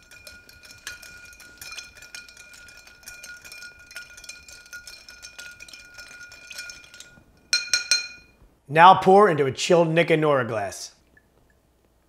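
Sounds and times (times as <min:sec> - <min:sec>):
glass ringing: 0:00.0 - 0:08.4
spoon stirring ice in glass: 0:00.0 - 0:08.4.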